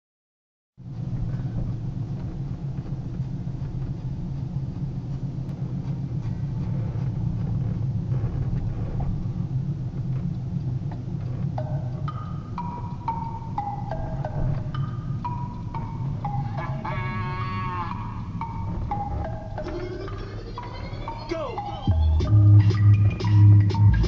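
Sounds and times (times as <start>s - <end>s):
truck engine and road noise: 0.8s - 24.0s
mallet-like music notes: 11.5s - 24.0s.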